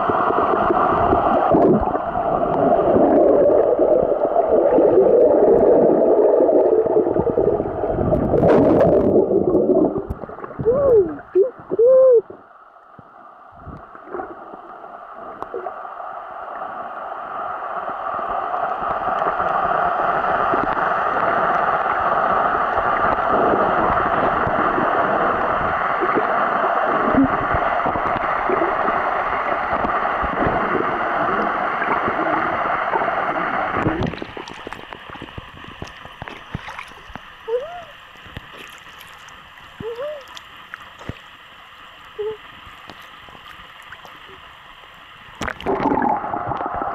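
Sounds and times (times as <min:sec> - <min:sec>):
muffled underwater hiss: 0:00.0 - 0:46.9
bubbling clicks: 0:00.9 - 0:11.8, 0:33.7 - 0:37.3, 0:45.4 - 0:46.9
water lapping with splashes: 0:33.8 - 0:44.7.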